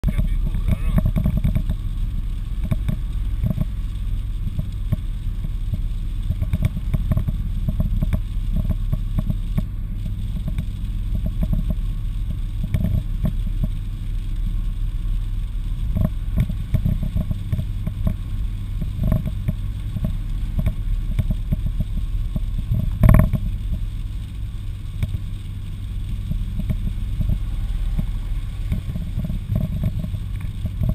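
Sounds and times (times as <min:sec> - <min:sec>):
road and engine rumble: 0:00.0 - 0:30.9.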